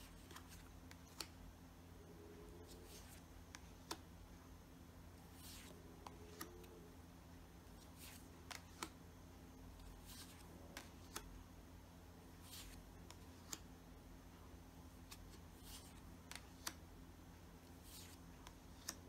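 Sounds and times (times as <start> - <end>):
cards clicking and sliding: 0.0 - 1.4, 5.3 - 6.8, 7.8 - 9.0, 12.4 - 13.7, 15.0 - 16.8, 17.7 - 19.0.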